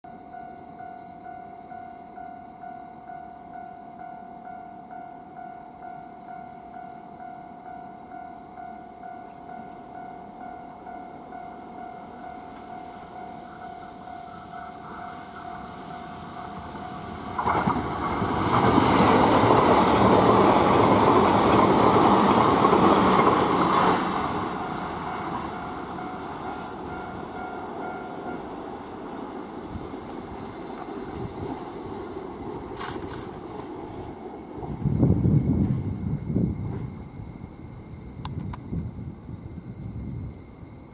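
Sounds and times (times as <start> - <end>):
level crossing warning tone: 0.1 - 29.0
train rushing past on rails: 4.9 - 40.9.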